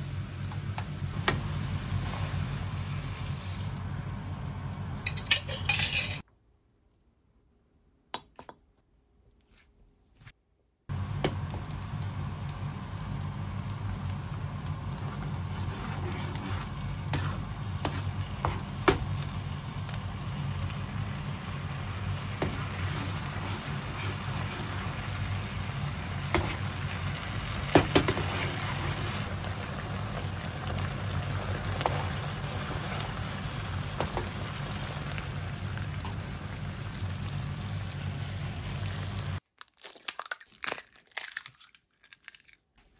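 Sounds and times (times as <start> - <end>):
sauce bubbling and sizzling: 0.0 - 5.2, 10.9 - 39.5.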